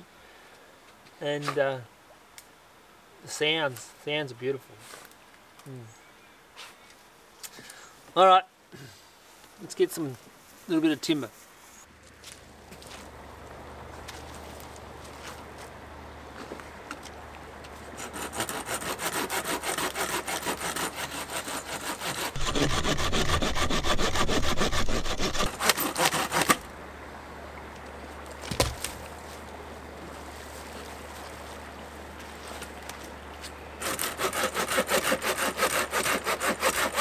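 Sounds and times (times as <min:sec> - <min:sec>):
hand saw cutting branch: 0:18.0 - 0:26.7, 0:33.8 - 0:37.0.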